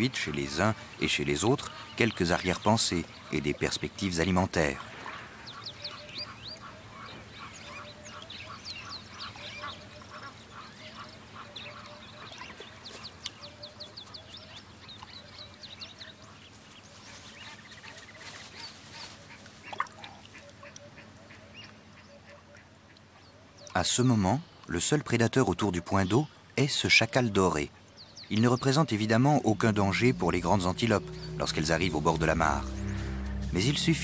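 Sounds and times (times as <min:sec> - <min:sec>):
lower bird call: 0:27.1 - 0:34.0
high bird chirps: 0:28.0 - 0:34.0.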